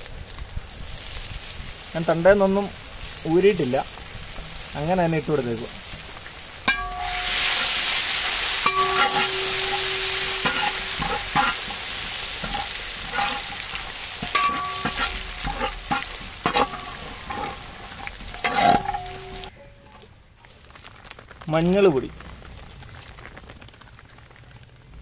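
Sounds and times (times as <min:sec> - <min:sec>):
leaves sizzling in hot oil: 0:00.0 - 0:25.0
metal spatula scraping metal pan: 0:06.7 - 0:19.6.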